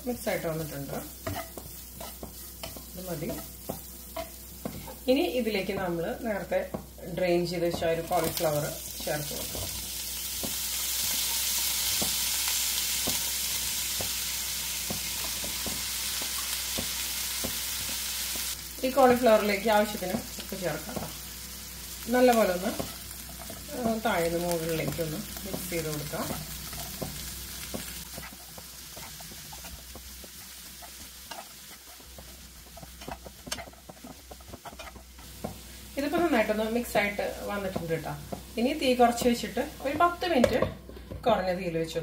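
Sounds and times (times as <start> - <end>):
hot oil sizzling in frying pan: 0.0 - 41.0
spatula scraping a frying pan: 1.2 - 5.0, 26.1 - 35.7.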